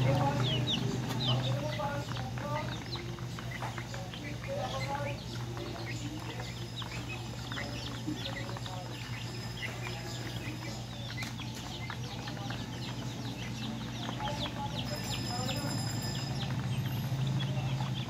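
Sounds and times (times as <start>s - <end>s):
chicken clucking: 0.0s - 18.0s
chicks peeping: 0.0s - 18.0s.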